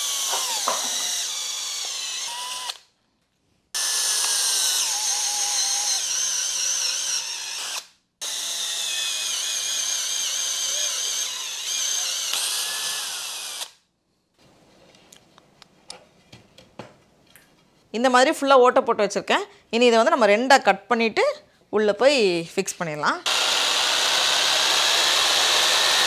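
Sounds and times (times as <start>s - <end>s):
cordless drill boring wood: 0.0s - 2.9s, 3.8s - 13.8s, 23.3s - 26.0s.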